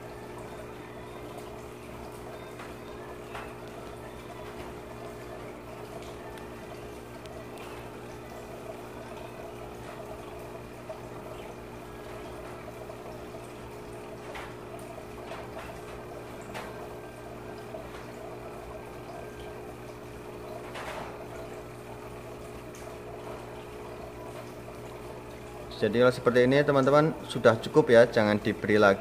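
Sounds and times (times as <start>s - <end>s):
low electrical hum: 0.0s - 29.0s
water bubbling and trickling: 0.0s - 29.0s.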